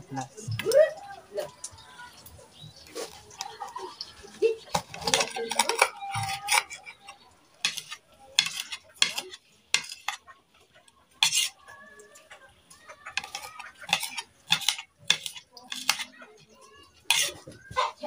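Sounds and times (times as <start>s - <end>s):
knife knocking and scraping plate: 4.7s - 7.0s, 7.6s - 10.2s, 11.2s - 11.6s, 13.2s - 16.2s, 17.1s - 17.6s.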